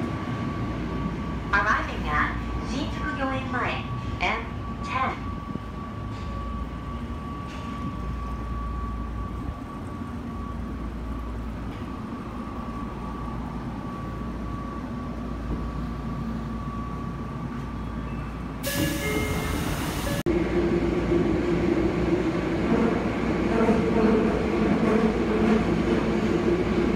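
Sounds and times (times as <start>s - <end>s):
subway car running: 0.0s - 26.9s
loud air hiss: 18.6s - 20.2s.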